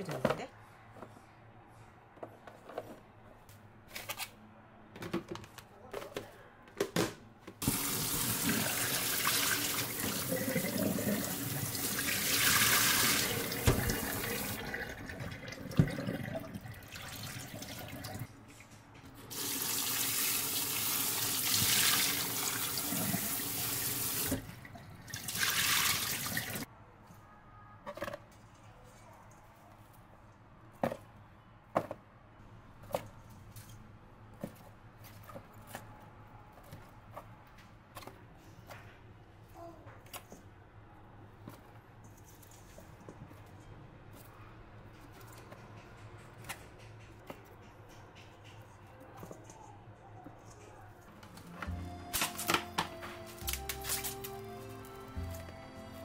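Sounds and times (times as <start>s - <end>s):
tap water running into sink: 7.6s - 18.3s, 19.3s - 26.6s.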